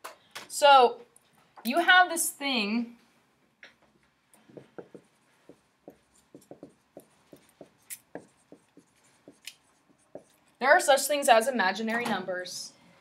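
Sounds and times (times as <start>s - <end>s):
marker squeaking on whiteboard: 4.6s - 10.5s.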